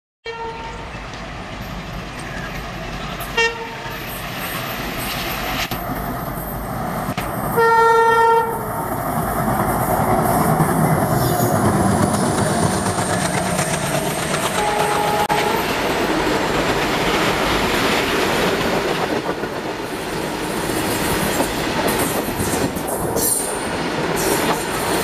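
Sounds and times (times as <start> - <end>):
train horn: 0.2 - 0.9, 3.3 - 4.1, 7.6 - 8.6, 14.5 - 15.7
diesel locomotive engines running: 0.6 - 25.0.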